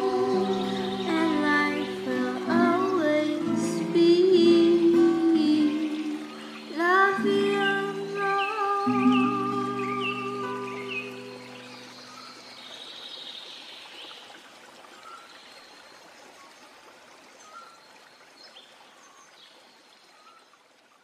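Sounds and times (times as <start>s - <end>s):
flowing water rushing: 0.0s - 21.0s
bird chirps: 6.1s - 13.7s.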